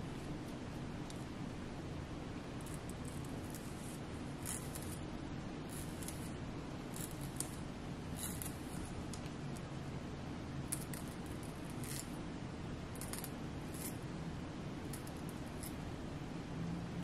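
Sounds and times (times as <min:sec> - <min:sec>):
low room hum: 0:00.0 - 0:17.0
comb scratching through hair: 0:02.6 - 0:05.0, 0:05.7 - 0:09.1, 0:10.8 - 0:12.2.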